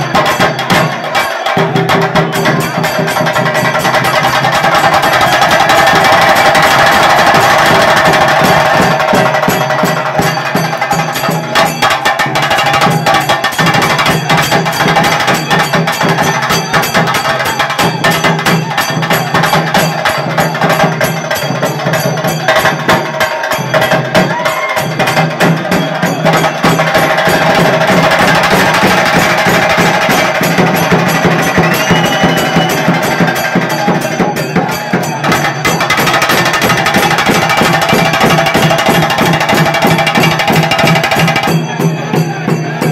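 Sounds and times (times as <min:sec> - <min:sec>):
drums beaten fast with sticks: 0:00.0 - 0:42.9.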